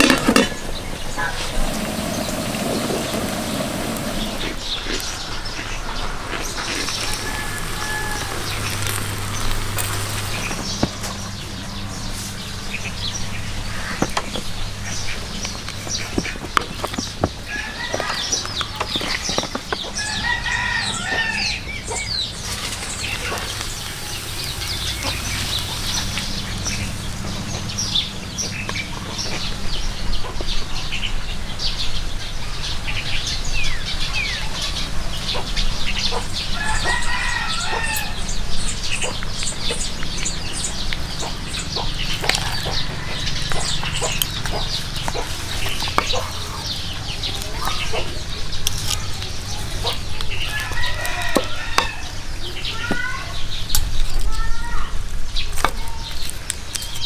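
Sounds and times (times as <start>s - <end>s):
chickens clucking: 0.0s - 12.2s, 13.6s - 29.6s, 34.4s - 53.0s
rooster crowing: 6.9s - 9.0s, 17.5s - 18.4s, 20.0s - 21.7s, 36.5s - 38.3s, 42.4s - 43.7s, 50.4s - 52.2s.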